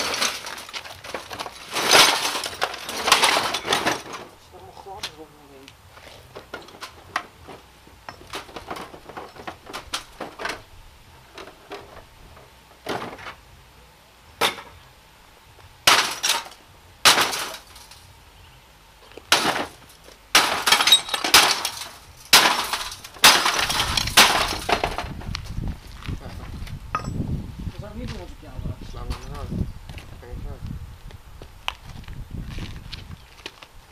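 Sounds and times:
hammer blows crunching glass: 0.0 - 4.2, 15.8 - 18.0, 19.3 - 25.1
broken glass clinking: 20.4 - 24.8.

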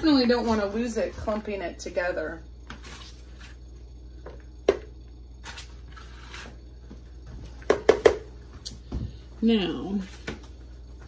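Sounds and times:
spoon scraping sheet pan: 5.4 - 6.6.

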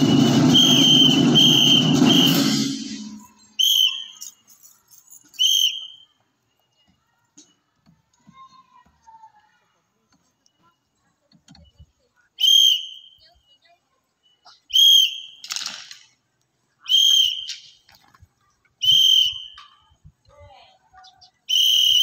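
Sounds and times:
brief rushing noise: 0.0 - 3.4
whistle blasts: 0.0 - 4.4, 5.3 - 6.2, 12.4 - 13.4, 14.6 - 15.5, 16.8 - 17.8, 18.8 - 19.8, 21.5 - 22.0.

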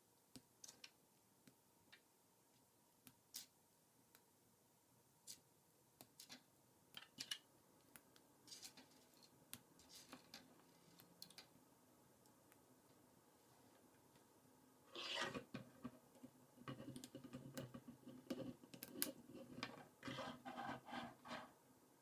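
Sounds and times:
plastic pieces clicking together: 7.0 - 7.4.

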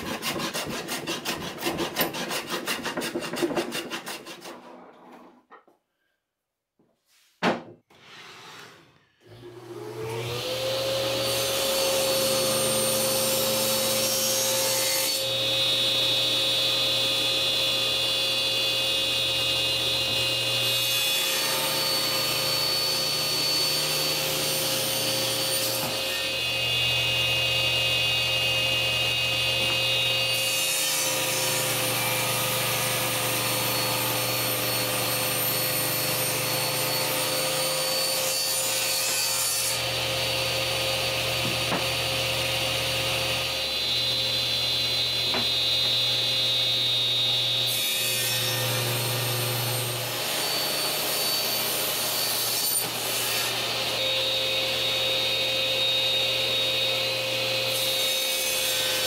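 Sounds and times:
saw blade cutting wood: 0.0 - 5.4, 7.9 - 8.9, 19.2 - 59.0
table saw whining: 7.9 - 59.0.

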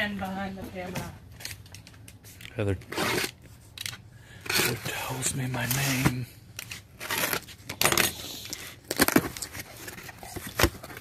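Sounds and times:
box cutter slitting tape: 2.9 - 3.4.

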